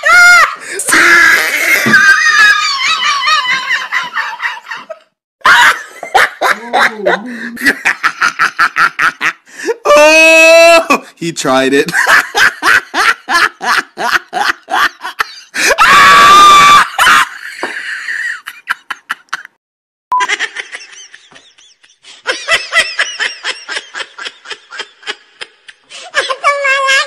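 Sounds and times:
person laughing: 0:01.4 - 0:09.4.

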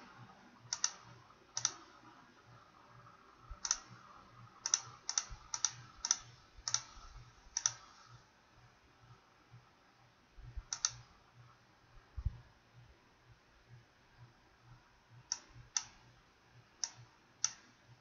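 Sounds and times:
mouse button clicking: 0:10.7 - 0:11.0.

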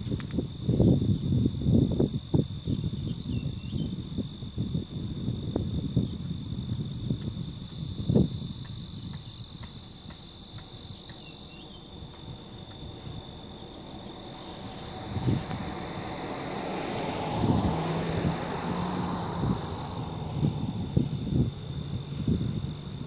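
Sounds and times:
wind buffeting the microphone: 0:00.0 - 0:23.0
vehicle approaching on highway: 0:00.4 - 0:23.0
high-pitched insect drone: 0:00.5 - 0:18.1.

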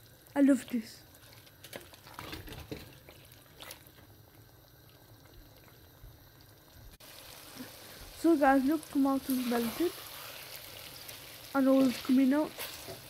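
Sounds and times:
faint bubbling and sizzling: 0:00.0 - 0:13.0.

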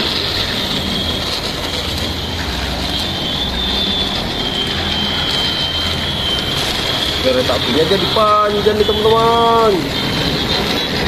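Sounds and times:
toy train motors whirring: 0:00.0 - 0:11.0.

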